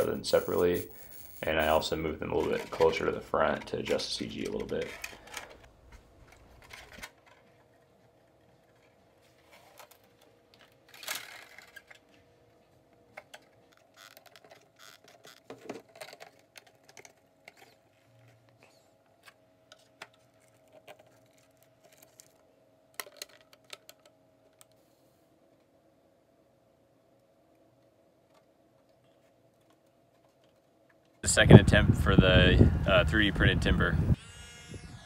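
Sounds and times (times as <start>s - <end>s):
hands scraping plastic parts: 0.0s - 12.1s.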